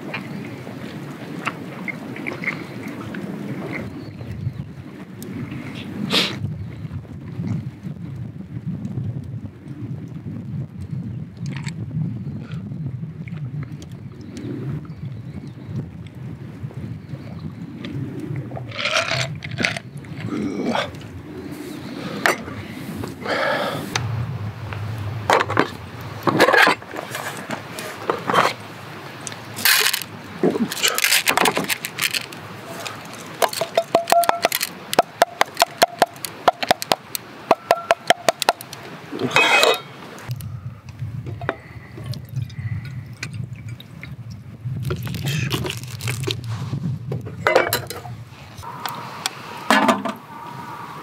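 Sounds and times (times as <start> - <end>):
water splashing: 17.8 - 40.4.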